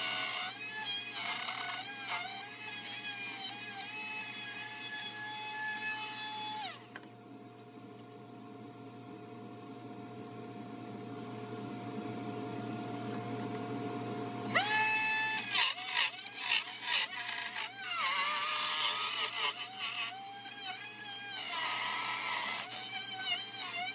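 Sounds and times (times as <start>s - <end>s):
trim router whining: 0.0s - 4.8s, 14.4s - 23.9s.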